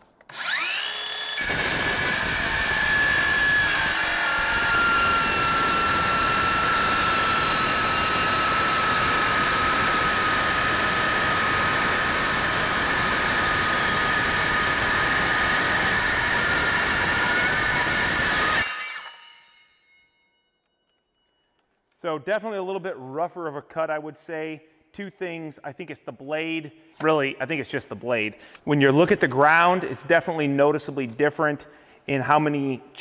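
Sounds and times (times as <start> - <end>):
circular saw cutting steel plate: 0.3 - 19.8.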